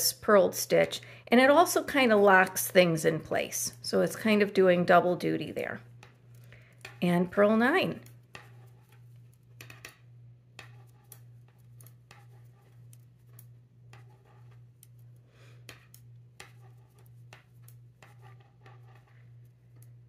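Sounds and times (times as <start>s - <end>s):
steady low hum: 0.0s - 20.0s
knitting needles clicking: 15.7s - 17.8s.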